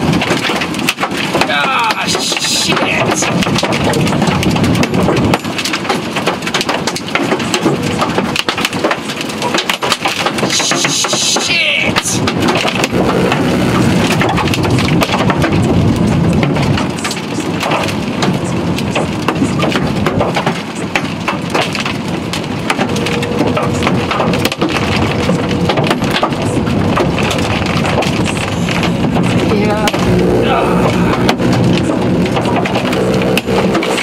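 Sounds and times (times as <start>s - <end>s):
hail clattering on car roof: 0.0s - 34.0s
rain hiss: 1.4s - 3.5s, 10.4s - 14.9s.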